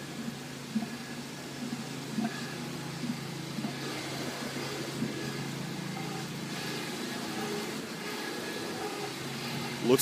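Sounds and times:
motor humming: 0.0 - 10.0
outdoor machinery hiss: 0.0 - 10.0.

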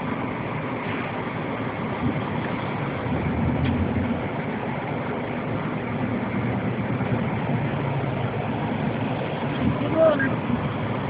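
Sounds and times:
car engine and tyre rumble: 0.0 - 11.0.

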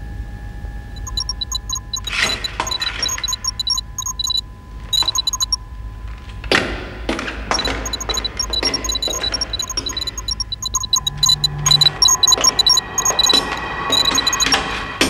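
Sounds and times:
electronic bleeps: 1.0 - 4.4, 5.0 - 5.6, 7.6 - 14.6.

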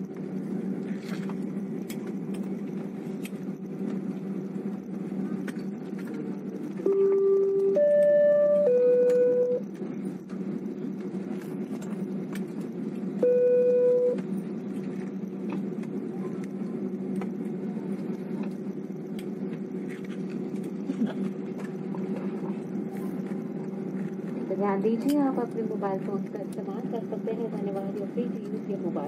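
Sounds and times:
airliner cabin hum: 0.0 - 29.0
held electronic tones: 6.8 - 9.6, 13.2 - 14.2.

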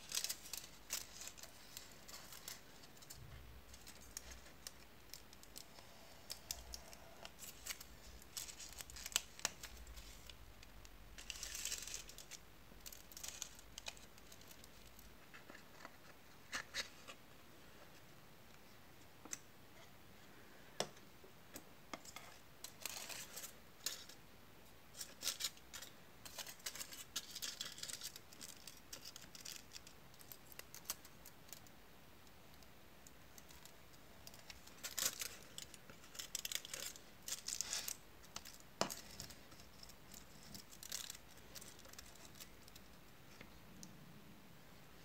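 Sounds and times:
foil crinkling: 0.0 - 5.7, 6.3 - 10.4, 11.2 - 15.0, 24.9 - 31.1, 33.6 - 42.8.

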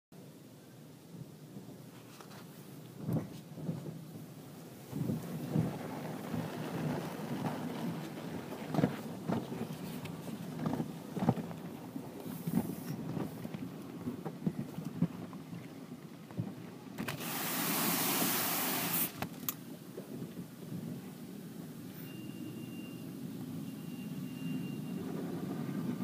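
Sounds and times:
hissing water jets spraying: 17.0 - 19.4
water and foam splashing on car: 17.1 - 19.3.

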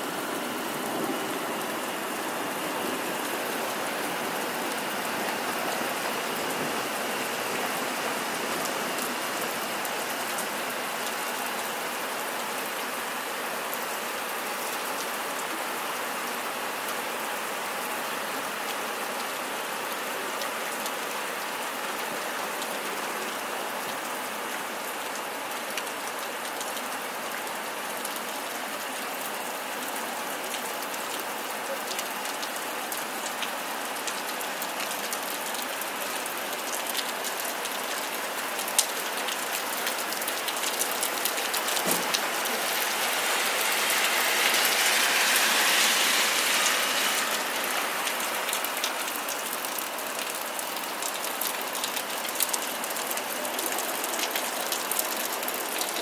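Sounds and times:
steady rain falling: 0.0 - 56.0
raindrops ticking: 30.5 - 44.8, 47.4 - 56.0.

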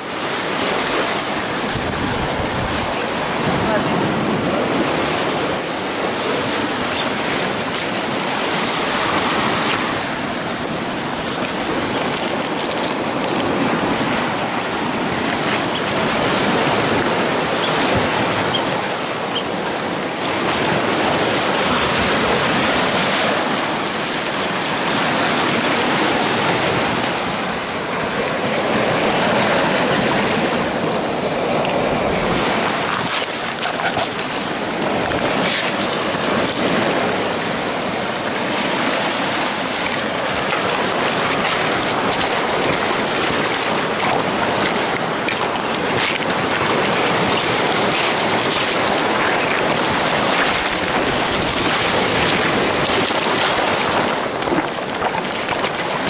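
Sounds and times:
waves breaking on pebble shore: 0.0 - 56.0.

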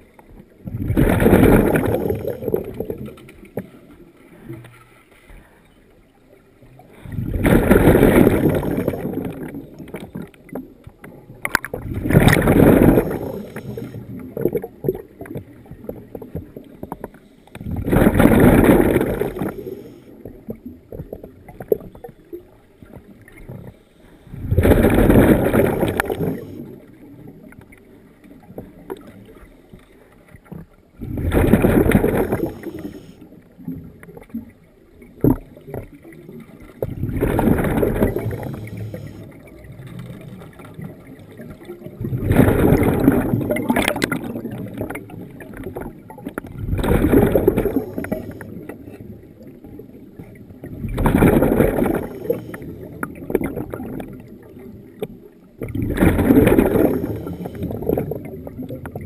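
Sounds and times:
underwater breath bubbles: 0.6 - 3.2, 6.8 - 10.3, 11.6 - 21.9, 23.4 - 26.9, 31.0 - 33.3, 35.2 - 49.2, 50.6 - 54.4, 55.6 - 59.0.

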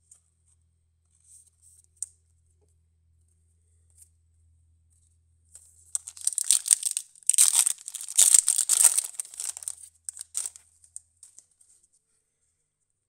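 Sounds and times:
foil wrapper tearing and crinkling: 6.0 - 10.6.

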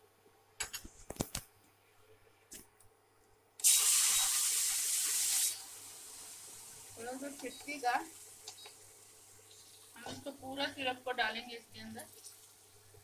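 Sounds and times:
syrup hissing and sizzling: 3.6 - 13.0.

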